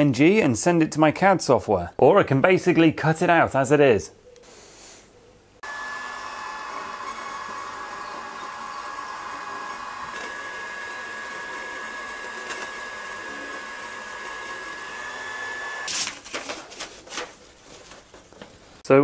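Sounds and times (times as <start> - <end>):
laser engraver fan whir: 5.6 - 15.9
paper rustling: 15.9 - 18.8.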